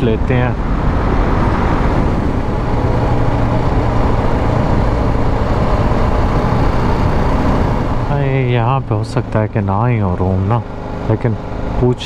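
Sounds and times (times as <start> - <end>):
wind rush on microphone: 0.0 - 8.3
motorcycle engine running: 0.6 - 12.0.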